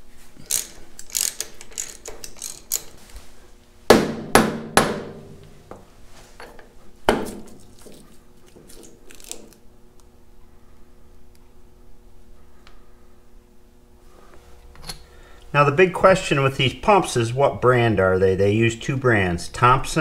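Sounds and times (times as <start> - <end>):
wrench clicking: 0.4 - 3.0
rubber mallet striking metal: 3.9 - 5.4.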